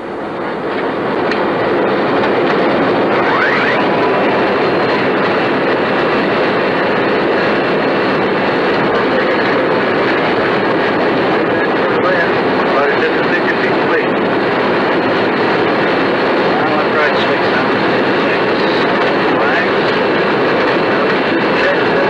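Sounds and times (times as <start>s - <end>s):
rushing cockpit noise: 0.0s - 22.0s
faint high tone: 3.1s - 3.9s.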